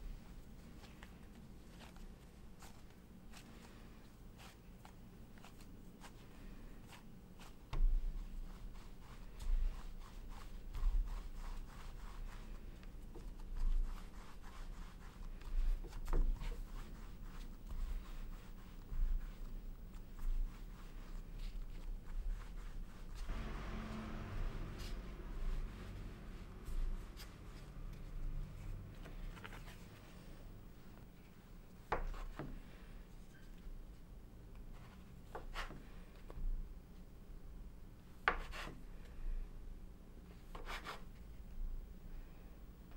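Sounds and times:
palms rubbing dough on wood: 1.0s - 23.4s.

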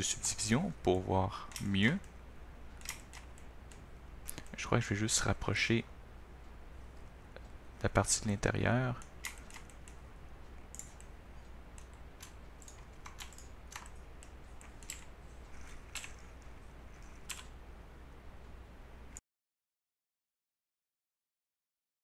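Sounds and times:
faint low hum: 0.0s - 19.2s
computer keyboard keystrokes: 2.8s - 4.4s, 9.0s - 10.0s, 10.7s - 11.1s, 11.7s - 17.6s.

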